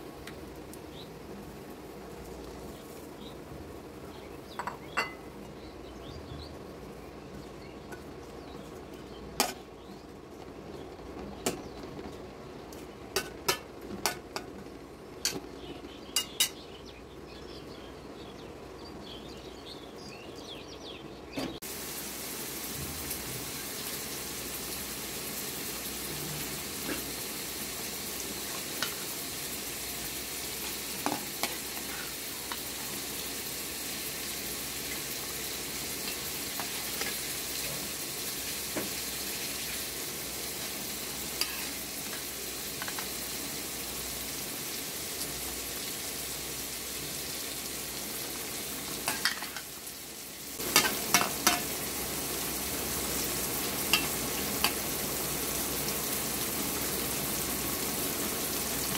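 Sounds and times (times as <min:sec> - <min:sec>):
food sizzling in oil: 0:15.2 - 0:16.6, 0:21.6 - 0:58.9.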